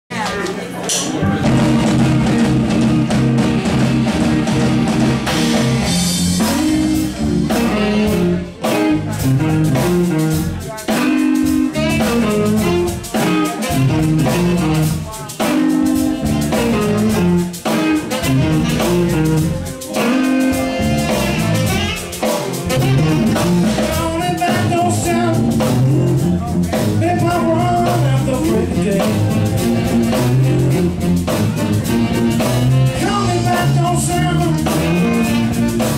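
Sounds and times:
live blues band playing: 0:00.1 - 0:35.9
person singing: 0:06.4 - 0:32.1, 0:32.9 - 0:35.9.

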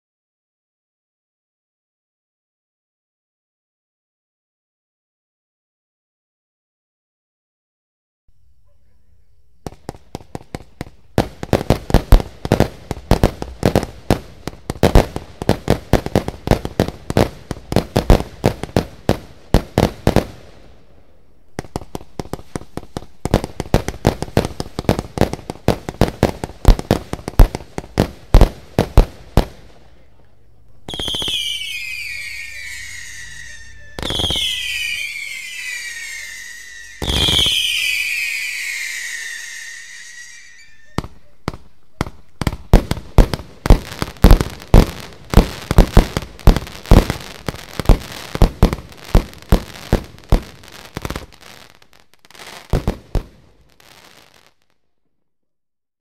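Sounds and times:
whistling firework shots: 0:08.8 - 0:51.7.

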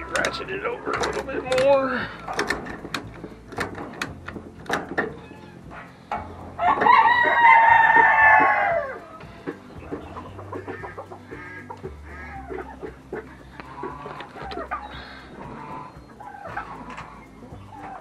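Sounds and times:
sharp clicks: 0:00.0 - 0:18.0
rooster crowing: 0:06.6 - 0:09.1.

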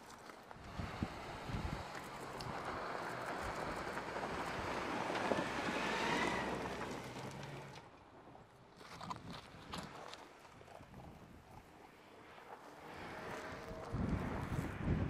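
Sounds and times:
vehicle driving by on dirt: 0:00.2 - 0:08.5, 0:11.6 - 0:15.0.

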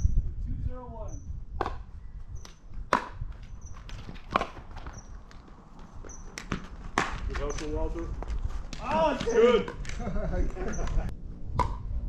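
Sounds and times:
footsteps on court: 0:03.3 - 0:11.0.

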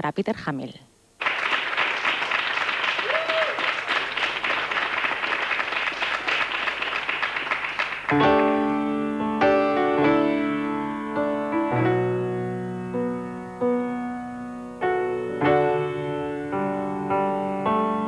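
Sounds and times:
studio audience applauding: 0:01.2 - 0:08.4
grand piano chords: 0:06.4 - 0:18.0.

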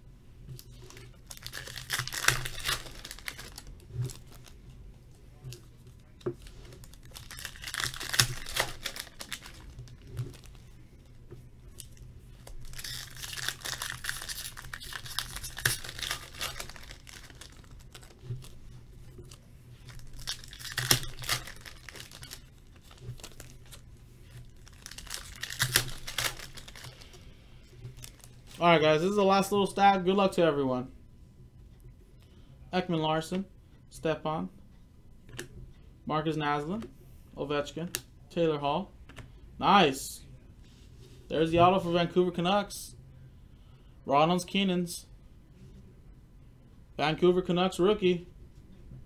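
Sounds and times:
foil wrappers torn and crinkled: 0:00.9 - 0:04.6, 0:06.4 - 0:10.6, 0:11.9 - 0:18.6, 0:19.3 - 0:23.8, 0:24.4 - 0:27.2, 0:28.0 - 0:28.6.

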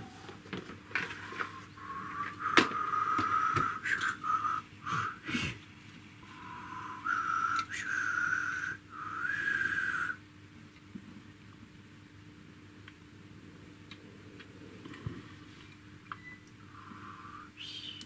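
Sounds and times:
person whistling a slow tune: 0:01.8 - 0:05.2, 0:06.8 - 0:10.2, 0:17.1 - 0:18.0.

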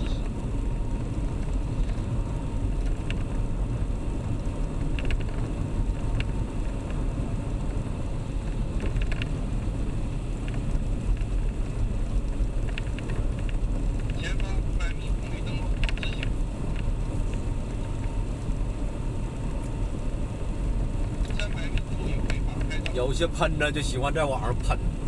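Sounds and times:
car road and engine rumble: 0:00.0 - 0:25.0
faint ticks: 0:04.4 - 0:07.0, 0:10.4 - 0:14.2.

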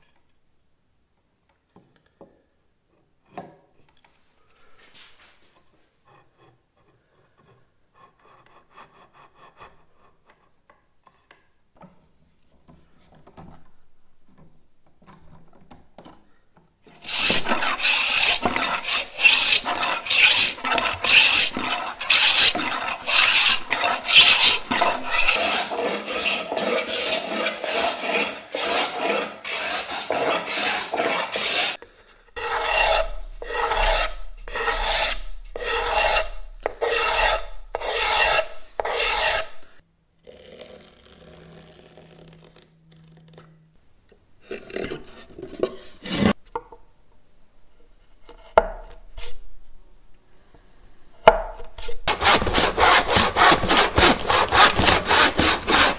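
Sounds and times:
hand plane rasping on wood: 0:16.9 - 0:31.8, 0:32.4 - 0:39.7, 0:52.1 - 0:55.9
hand scraper strokes on wood: 0:16.9 - 0:31.8, 0:32.4 - 0:39.8, 0:51.7 - 0:55.9.

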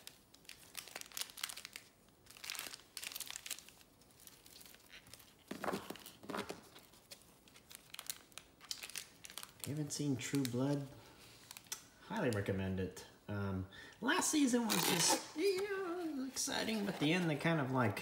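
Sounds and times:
foil packs crinkling: 0:00.0 - 0:11.8.

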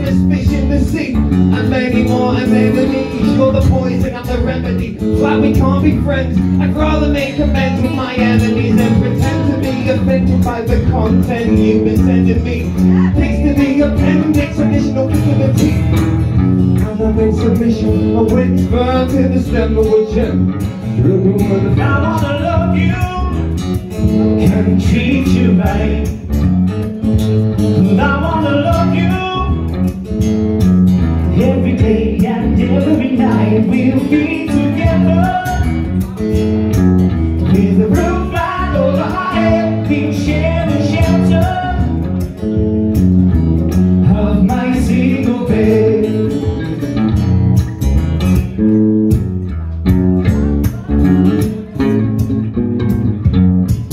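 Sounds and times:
person singing: 0:00.0 - 0:15.9, 0:31.2 - 0:36.4, 0:37.4 - 0:42.6, 0:44.0 - 0:46.9
acoustic guitar: 0:00.0 - 0:53.9
drum kit beat: 0:00.0 - 0:53.9
electric bass guitar: 0:00.0 - 0:53.9.

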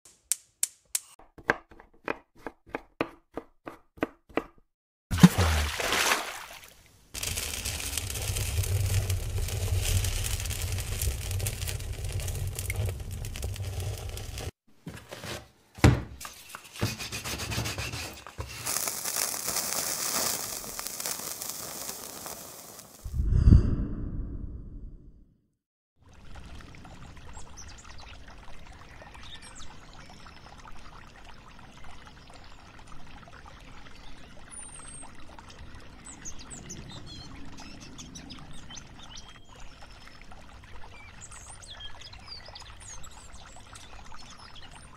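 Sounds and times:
thump: 0:15.8 - 0:16.2.

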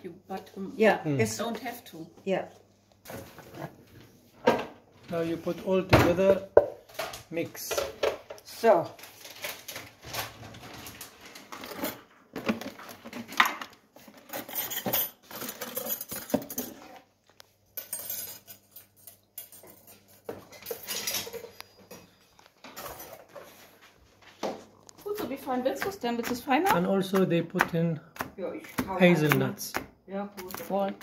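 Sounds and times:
metal utensils clattering: 0:09.1 - 0:17.0, 0:17.7 - 0:23.7.

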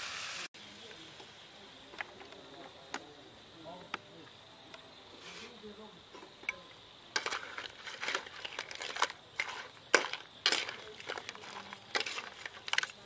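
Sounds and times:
metal spatula scraping a wok: 0:07.2 - 0:13.0.

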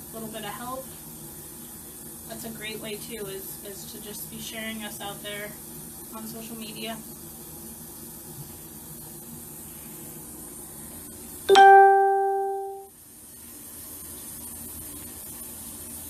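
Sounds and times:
chime ding: 0:11.5 - 0:12.9.

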